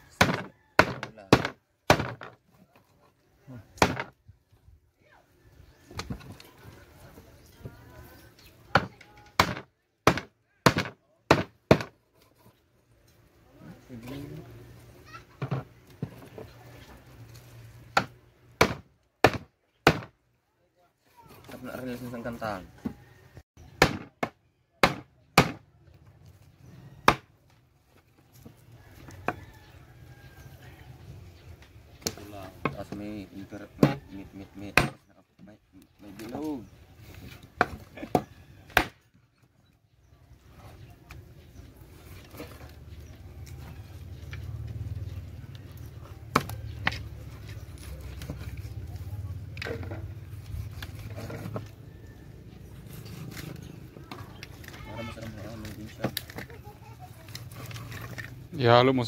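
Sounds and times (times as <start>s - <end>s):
knife chopping fish on wood: 18.0s - 20.1s.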